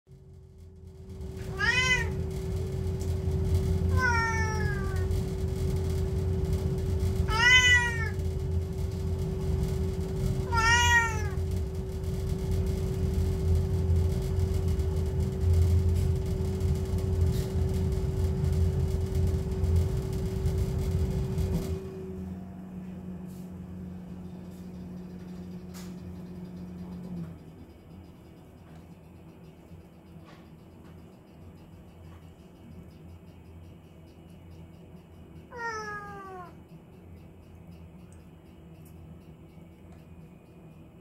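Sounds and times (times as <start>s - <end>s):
gas boiler humming: 0.1s - 41.0s
droning tone: 0.2s - 41.0s
cat meowing: 1.4s - 2.2s, 3.9s - 5.1s, 7.3s - 8.2s, 10.4s - 11.4s, 35.5s - 36.6s.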